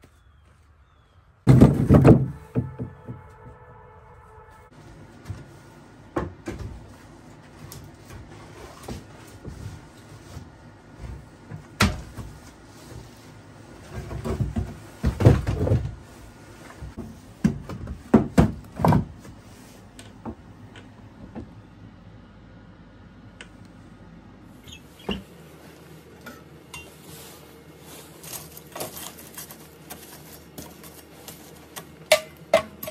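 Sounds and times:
firewood logs knocking: 1.5 - 3.5.

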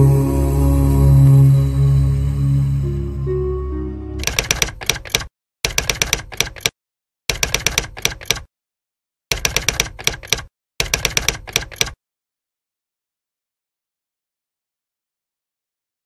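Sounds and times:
typewriter key clacks: 4.2 - 6.7, 7.3 - 8.5, 9.3 - 12.0.

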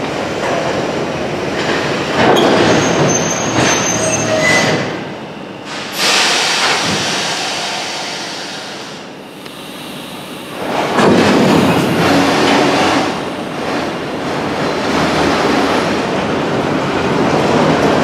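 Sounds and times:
train wheels rumbling on track: 0.0 - 18.0
high-pitched wheel squeals: 2.7 - 5.0.

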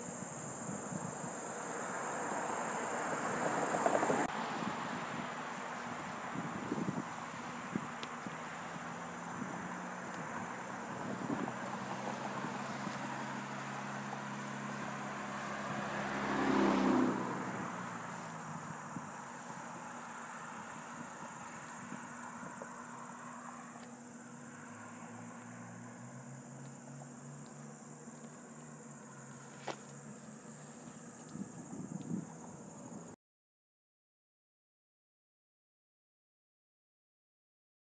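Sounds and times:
insect chorus: 0.0 - 33.2
car driving past: 1.6 - 31.5.

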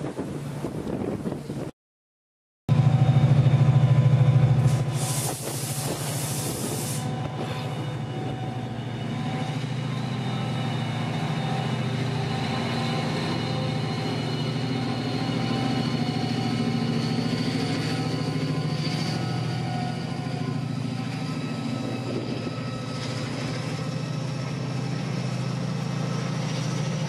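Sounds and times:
diesel locomotive engine throbbing: 2.7 - 27.0
brief hiss: 4.6 - 7.1.

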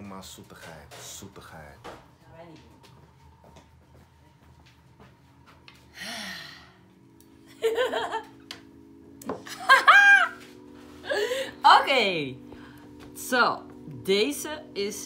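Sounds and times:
background music: 0.0 - 15.0
breathy gasp: 5.9 - 6.8
woman laughing and squealing: 9.5 - 10.4
woman shrieking: 9.7 - 10.4.

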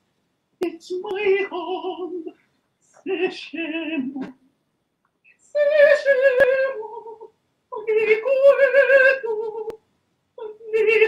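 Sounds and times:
man singing unaccompanied high voice: 5.6 - 9.8.

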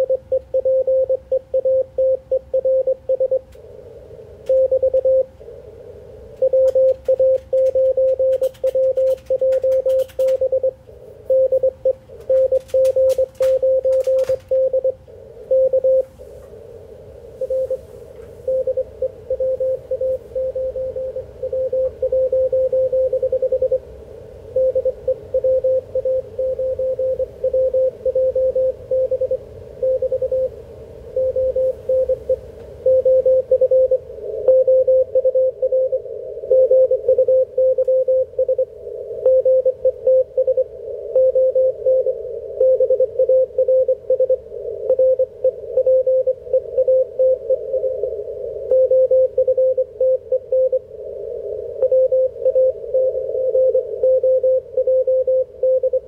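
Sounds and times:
morse code tone: 0.0 - 3.4, 4.5 - 5.3, 6.4 - 16.1, 17.4 - 23.8, 24.6 - 30.5, 31.2 - 50.9, 51.7 - 56.0
receiver hiss: 0.0 - 56.0
sharp clicks: 6.6 - 10.5, 12.2 - 14.7.

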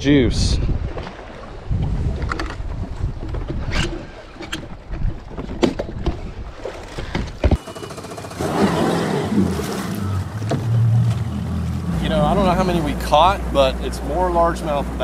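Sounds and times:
wind buffeting microphone: 0.0 - 7.6
water noise: 0.0 - 15.0
outboard motor running low: 7.5 - 15.0.

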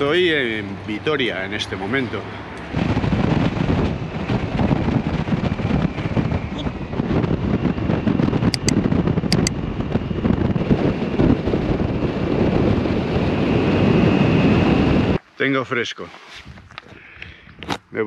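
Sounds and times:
wind buffeting microphone: 0.0 - 15.2
road noise: 0.0 - 18.0
short high clicks: 8.5 - 9.5.

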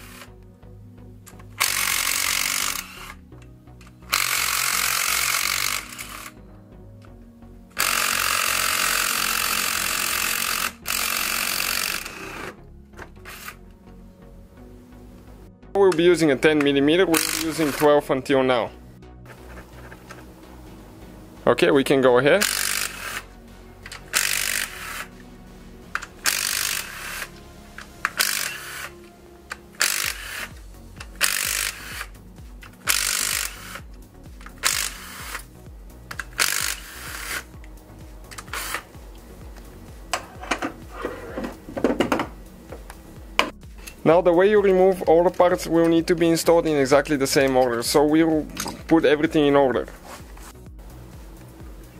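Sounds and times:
cordless driver spinning bolts: 1.3 - 3.2, 3.8 - 6.3, 7.8 - 12.6, 16.6 - 17.9, 22.4 - 25.2, 25.9 - 35.5, 36.1 - 37.5, 38.3 - 38.9
impact driver hammering: 7.8 - 12.5.

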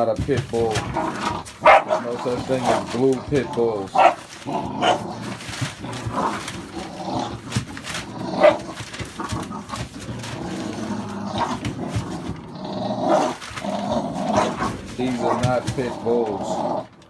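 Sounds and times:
newspaper crinkling: 0.0 - 17.0
puppies growling and yipping: 0.6 - 17.0.

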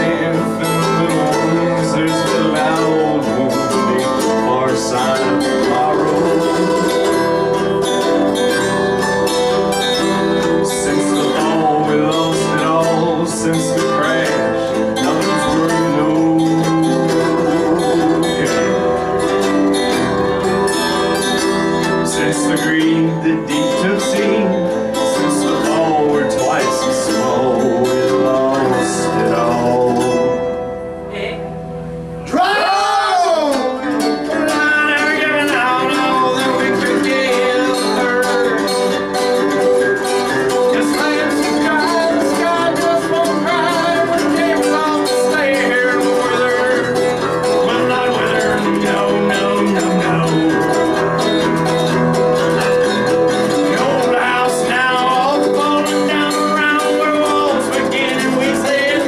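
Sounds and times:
person singing: 0.0 - 31.4, 32.3 - 59.0
acoustic guitar: 0.0 - 59.0
plucked string instrument: 0.0 - 59.0.

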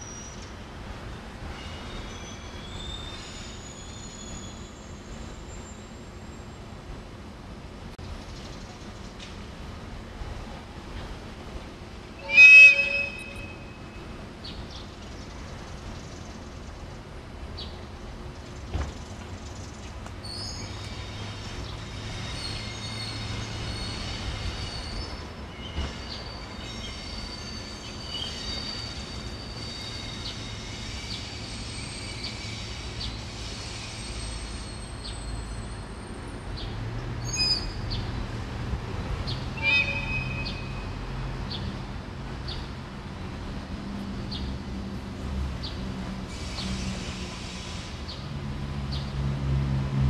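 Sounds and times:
wheels squealing on curves: 12.2 - 13.7, 39.6 - 41.0.

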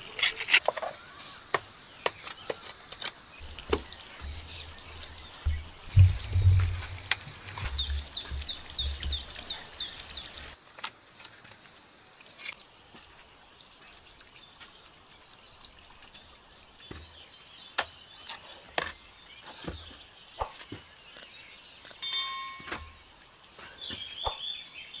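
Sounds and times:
birds calling: 0.0 - 10.6, 13.8 - 25.0
trowel knocking and scraping stone: 0.2 - 4.6, 22.4 - 23.0.

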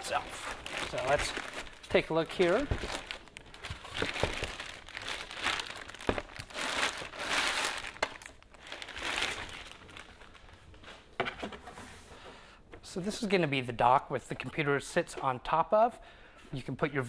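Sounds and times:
plastic bag crinkling: 0.0 - 10.7.

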